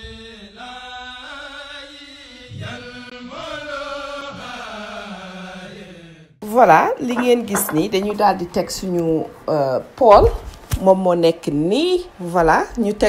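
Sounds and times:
chant-like vocal intro music: 0.5s - 6.4s.

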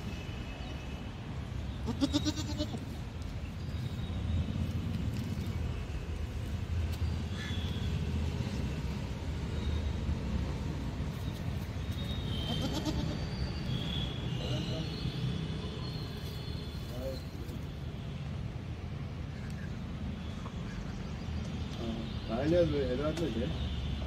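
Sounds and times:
young goat bleating: 1.8s - 3.0s, 12.4s - 13.3s.

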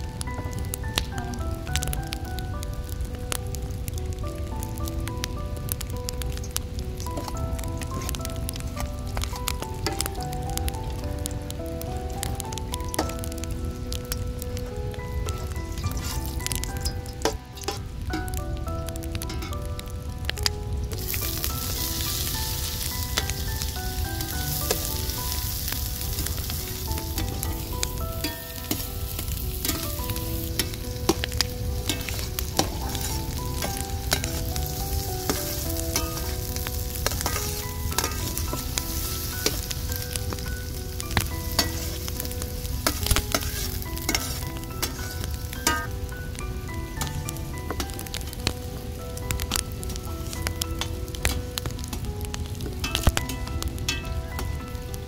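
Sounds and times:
onions sizzling in oil: 0.0s - 55.0s
metal spatula clicking on pan: 37.0s - 38.4s.

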